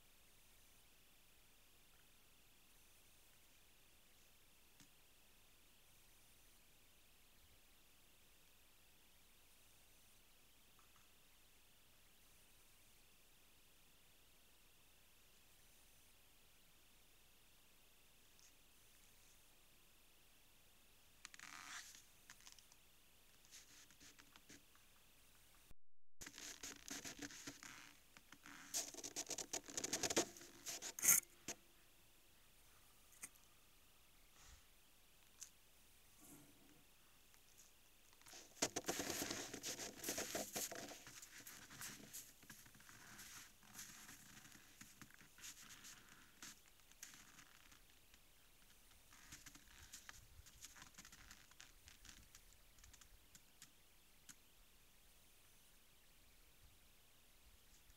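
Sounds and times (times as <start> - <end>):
scratching and clicking rustles: 26.2 - 31.6, 37.5 - 54.4
animal muzzle scraping camera housing: 30.1 - 31.2.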